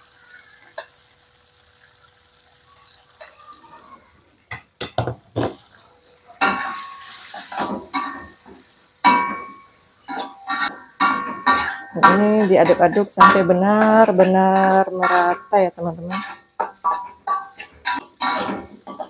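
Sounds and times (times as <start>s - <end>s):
oil sizzling: 0.0s - 19.0s
metal spatula scraping a wok: 5.4s - 19.0s.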